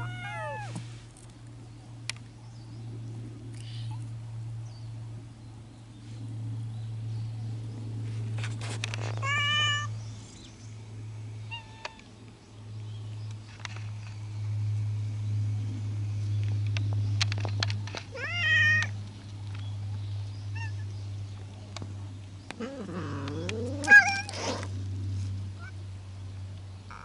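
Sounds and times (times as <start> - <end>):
cats meowing: 0.0 - 0.8, 9.2 - 9.9, 18.1 - 18.9, 20.5 - 20.9, 22.6 - 24.4
steady low hum: 0.0 - 27.0
cat chirp: 23.3 - 24.3.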